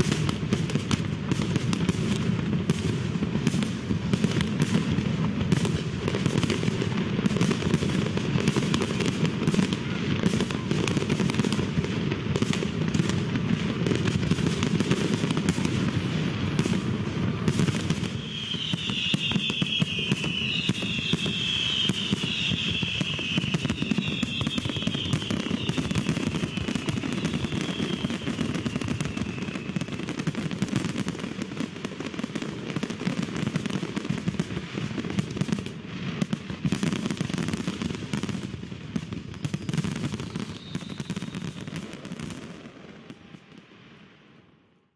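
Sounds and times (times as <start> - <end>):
falling firework whistles: 0.0 - 43.9
fireworks bangs and crackle: 0.0 - 44.9.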